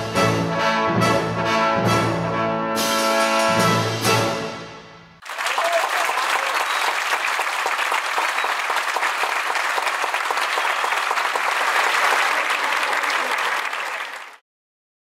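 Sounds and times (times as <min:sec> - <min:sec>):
audience applauding: 0:05.2 - 0:14.4.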